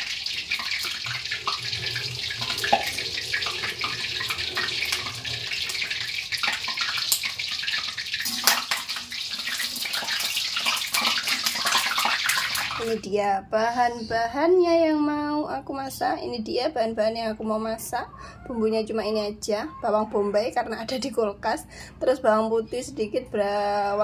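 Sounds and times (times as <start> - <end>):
tap running into sink: 0.0 - 5.8
dishes and utensils clinking: 6.4 - 7.5.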